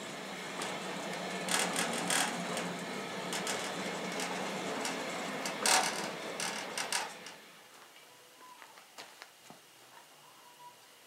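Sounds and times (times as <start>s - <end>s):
sawmill wheels rumbling on track: 0.0s - 7.6s
clacks and knocks: 0.5s - 7.4s.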